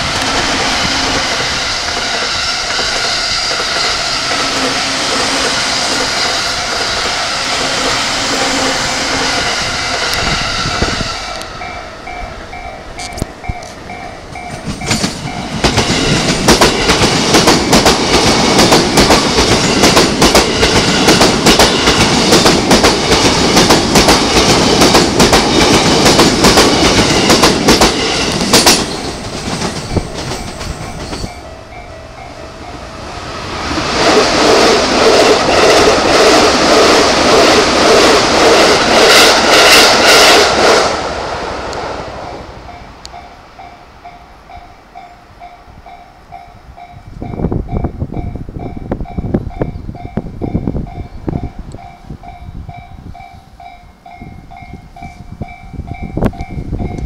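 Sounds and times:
electric train passing: 0.0 - 57.0
level crossing warning bell: 11.2 - 16.2, 28.8 - 33.2.

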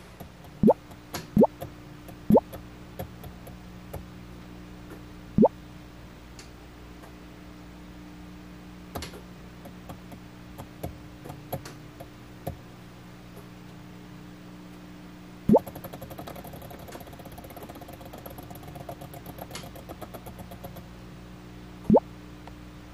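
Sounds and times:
steady low hum: 0.0 - 22.9
air bubble bloop: 0.6 - 0.8.

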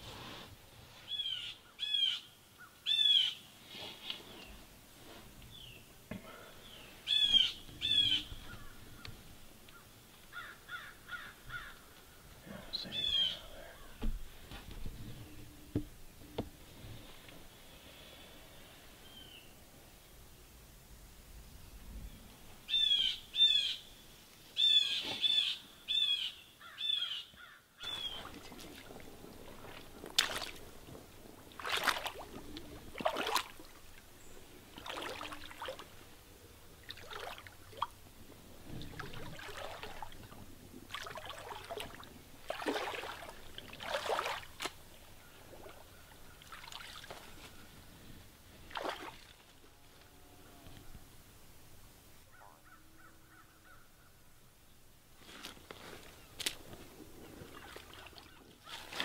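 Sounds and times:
bird calling: 1.1 - 3.5, 6.6 - 12.0, 12.7 - 14.1, 22.7 - 23.9, 24.6 - 28.6, 52.3 - 54.2
footsteps splashing through water: 27.8 - 34.0, 34.7 - 35.9, 36.8 - 38.0, 38.8 - 40.2, 40.9 - 44.8, 46.4 - 47.4, 48.7 - 49.5, 57.4 - 59.0.

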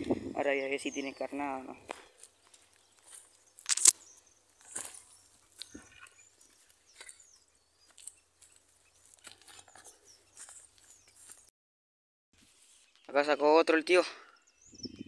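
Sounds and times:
faint bird chirps: 0.1 - 11.4, 14.2 - 15.0
footsteps crunching on dry leaves: 1.8 - 11.5.

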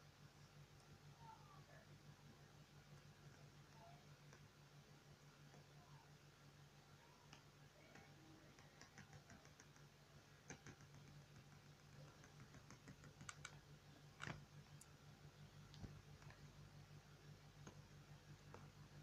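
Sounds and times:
low steady hum: 0.0 - 19.0
computer keyboard and mouse clicks: 7.3 - 14.9.

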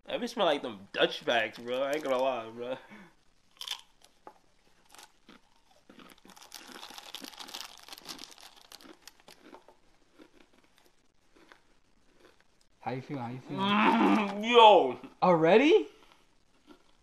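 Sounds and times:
foil pouch crinkling and tearing: 6.1 - 9.4.

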